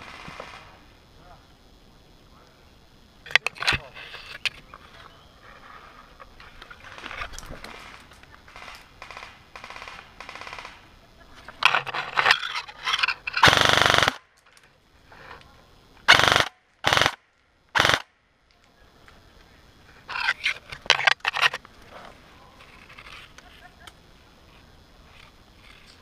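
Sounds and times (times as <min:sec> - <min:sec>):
airsoft guns firing: 0:00.0 - 0:00.8, 0:07.8 - 0:10.8, 0:13.4 - 0:14.2, 0:16.1 - 0:17.2, 0:17.8 - 0:18.1.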